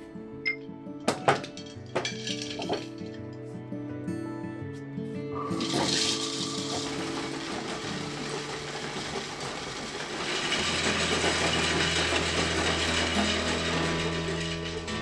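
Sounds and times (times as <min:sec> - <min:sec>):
soft background music: 0:00.0 - 0:09.4
ball mill churning: 0:05.6 - 0:15.0.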